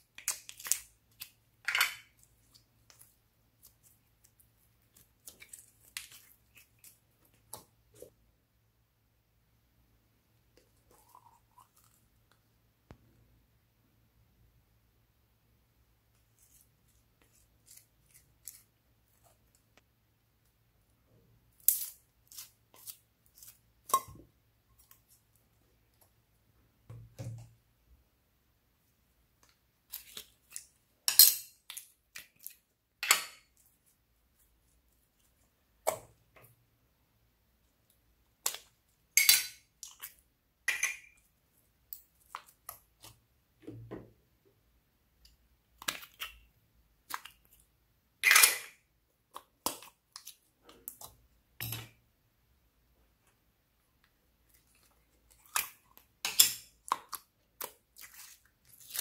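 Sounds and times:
slime squelching: 0.0 - 8.3, 21.4 - 26.2, 29.3 - 30.9, 45.2 - 47.9, 49.1 - 51.8, 53.9 - 59.0.

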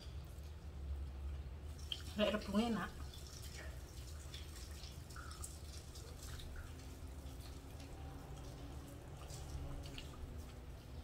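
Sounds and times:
wet chewing: 3.0 - 11.0.

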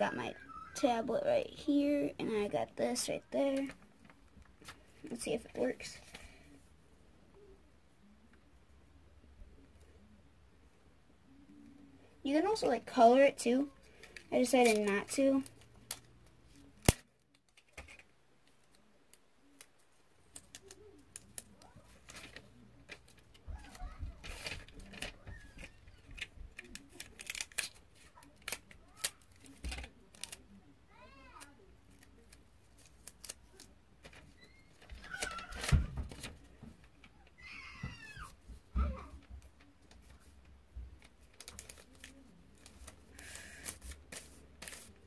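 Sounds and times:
paper and tape rustling: 2.8 - 6.6, 13.0 - 45.0.

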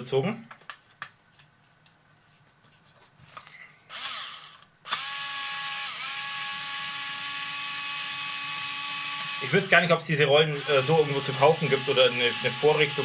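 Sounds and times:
cordless screwdriver whining: 3.9 - 9.7, 10.5 - 13.0.

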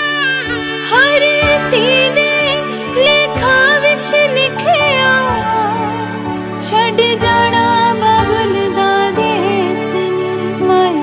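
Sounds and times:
melody of wavering held notes: 0.0 - 6.6.

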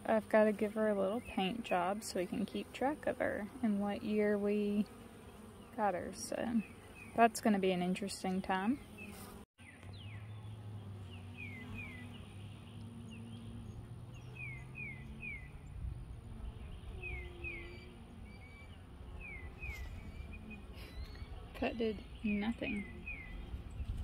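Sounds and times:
honeybees humming: 0.0 - 24.0
bird whistling: 14.2 - 15.6, 17.0 - 21.3.

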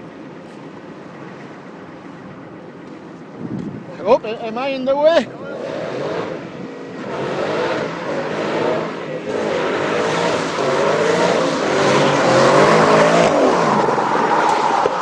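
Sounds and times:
car engine revving hard: 5.5 - 15.0
rushing noise: 5.5 - 15.0.

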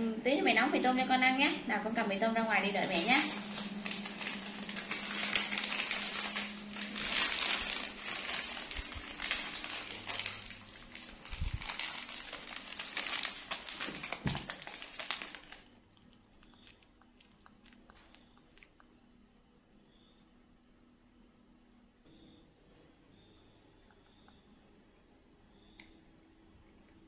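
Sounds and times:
plastic packet crinkling: 2.7 - 18.8.

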